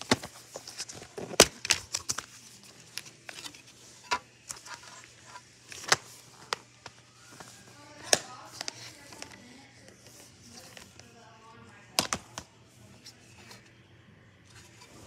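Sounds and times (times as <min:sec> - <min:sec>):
plastic case clicks and snaps: 0:12.0 - 0:12.5.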